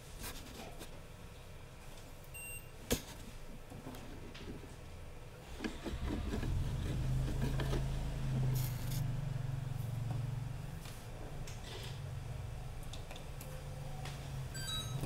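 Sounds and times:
low hum: 0:05.7 - 0:14.6.

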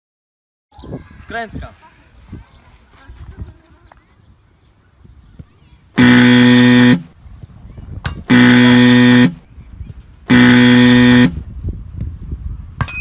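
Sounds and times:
buzzer blasts: 0:06.0 - 0:07.1, 0:08.3 - 0:09.4, 0:10.3 - 0:11.4.

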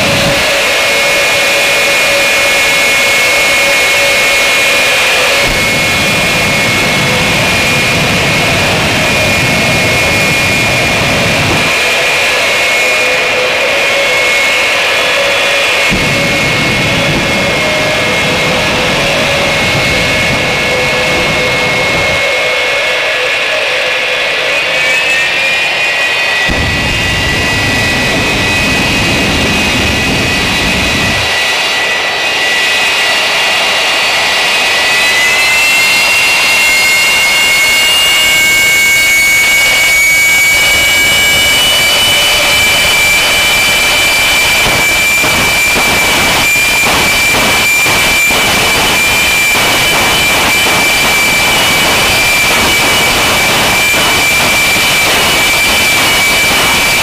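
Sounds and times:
jet engine high whine: 0:00.0 - 0:57.0
low rumble: 0:15.8 - 0:22.2, 0:26.4 - 0:31.4.

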